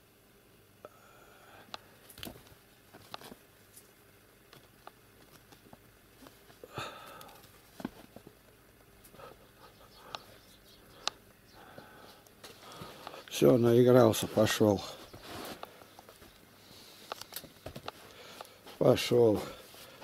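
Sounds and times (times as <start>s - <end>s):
kitten paws tapping and rustling: 2.1s - 6.6s.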